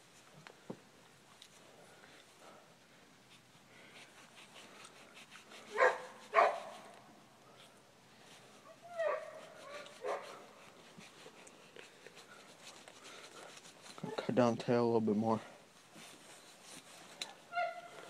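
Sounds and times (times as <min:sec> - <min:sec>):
dog barking: 0:05.7 - 0:06.7, 0:10.0 - 0:10.4.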